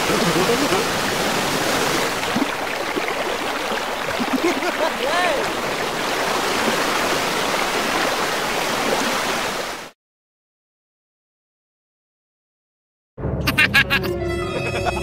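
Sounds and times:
water rushing down a channel: 0:00.0 - 0:10.0.

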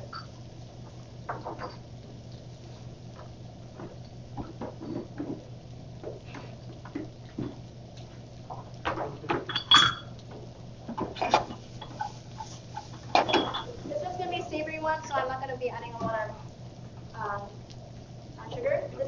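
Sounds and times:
steady low hum: 0:00.0 - 0:19.0
ringing metal clang: 0:09.5 - 0:10.1.

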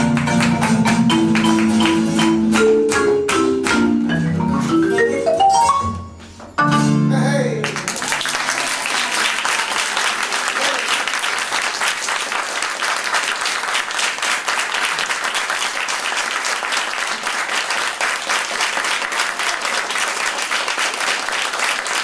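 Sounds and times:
audience applauding: 0:00.0 - 0:02.3, 0:07.6 - 0:22.0.

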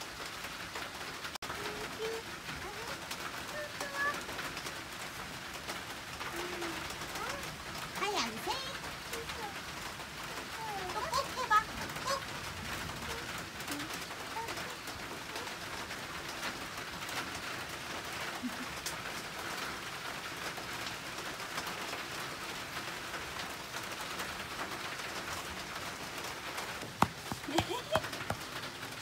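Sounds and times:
outdoor background hiss: 0:00.0 - 0:29.0.

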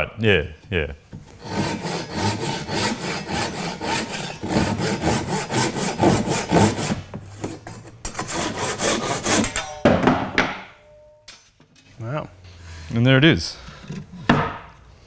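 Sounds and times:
hand saw rasping through wood: 0:01.4 - 0:09.6.

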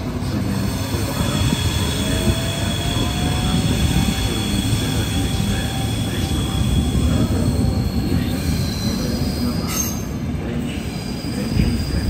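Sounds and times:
train wheels rumbling on track: 0:00.0 - 0:12.0.

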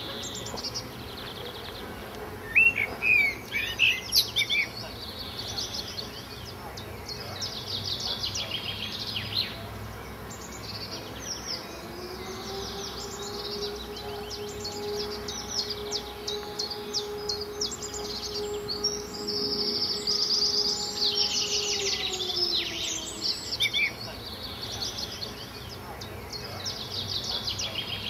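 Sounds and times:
small birds chirping: 0:00.0 - 0:28.0
steady hum: 0:10.2 - 0:24.5.

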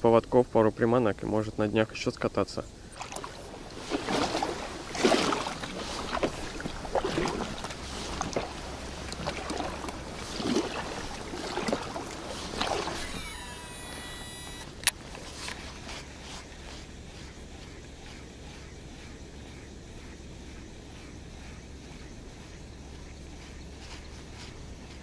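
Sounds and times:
paddle splashing in water: 0:03.0 - 0:25.0
fishing reel whirring: 0:12.2 - 0:16.8.

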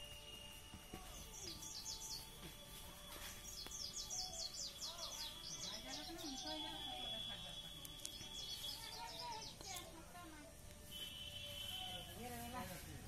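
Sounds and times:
small bird chirping: 0:00.0 - 0:10.1.

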